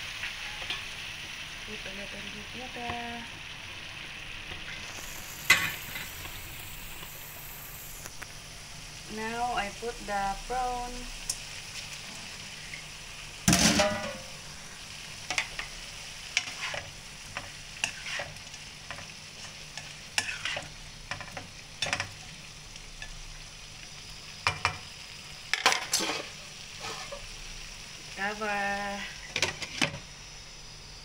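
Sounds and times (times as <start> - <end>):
food sizzling in wok: 0.0 - 31.0
spatula scraping wok: 4.6 - 7.4, 11.7 - 22.4, 25.5 - 27.5, 28.9 - 30.1.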